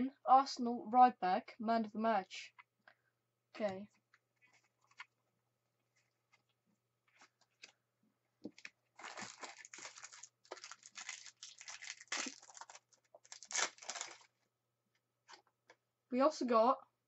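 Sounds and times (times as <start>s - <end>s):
cards rustling and scraping: 3.7s - 5.2s.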